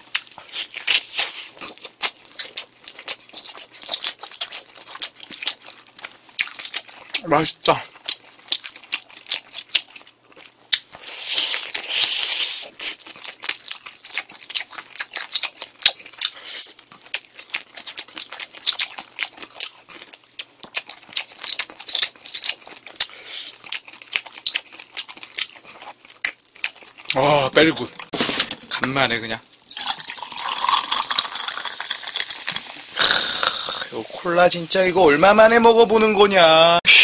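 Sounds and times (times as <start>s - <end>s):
wet chewing: 0.0s - 28.9s
rustling and tearing: 28.1s - 28.8s.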